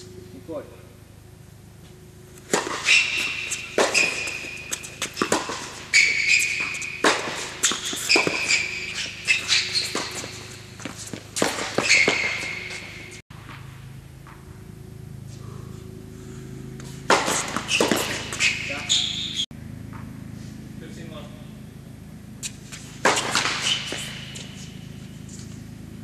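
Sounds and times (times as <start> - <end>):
sneakers squeaking on court: 1.9 - 14.5, 16.7 - 20.3, 22.4 - 25.9
racket hitting tennis ball: 2.3 - 14.6, 16.6 - 20.3, 22.4 - 25.8
tennis ball bouncing: 2.3 - 14.8, 16.6 - 20.3, 22.4 - 25.9.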